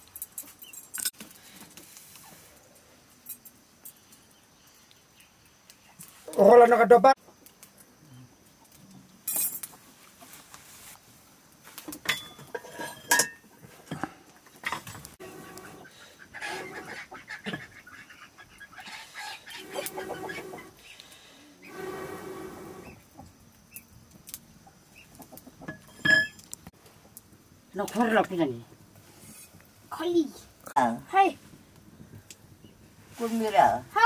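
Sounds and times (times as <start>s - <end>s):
wood fire crackling: 13.5s - 16.9s, 19.4s - 34.0s.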